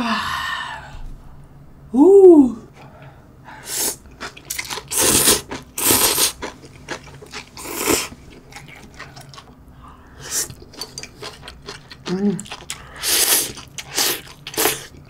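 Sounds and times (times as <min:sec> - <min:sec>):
noodle slurping: 0:03.7 - 0:08.2, 0:10.2 - 0:15.0
wet chewing clicks: 0:10.5 - 0:15.0.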